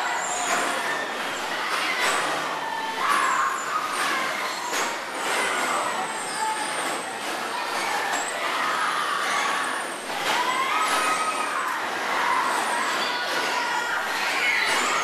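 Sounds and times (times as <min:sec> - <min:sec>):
bumper car motors whining: 0:00.0 - 0:15.0
bumper cars knocking: 0:00.1 - 0:15.0.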